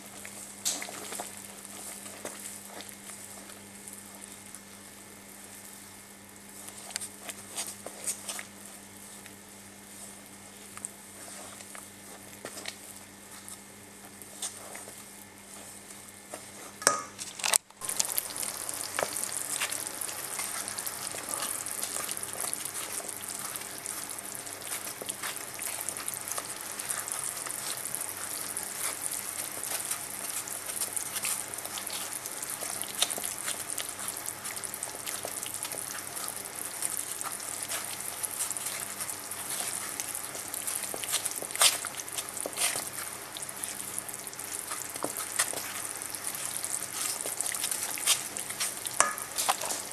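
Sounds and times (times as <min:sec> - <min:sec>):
fat sizzling in a pan: 0:17.8 - 0:49.9.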